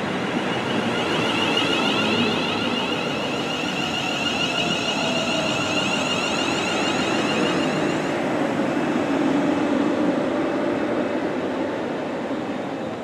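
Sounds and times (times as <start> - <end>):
train traction motor whine: 0.0 - 9.1.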